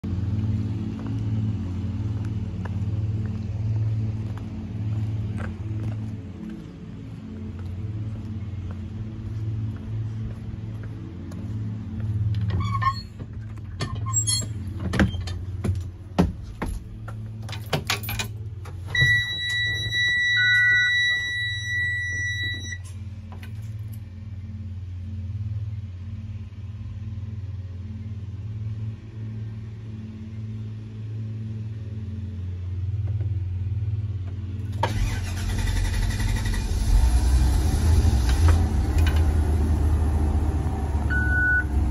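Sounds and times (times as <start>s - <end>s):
steady low hum: 0.0s - 12.5s, 14.5s - 34.8s
bus engine cranking and starting: 16.8s - 23.6s, 34.7s - 41.9s
electronic warning tone: 19.0s - 22.8s.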